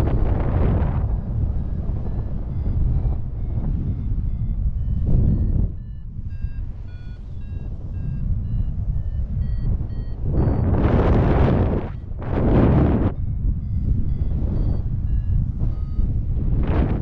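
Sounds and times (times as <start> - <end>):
variometer electronic beeps: 0.0 - 17.0
wind rushing on microphone: 0.0 - 17.0.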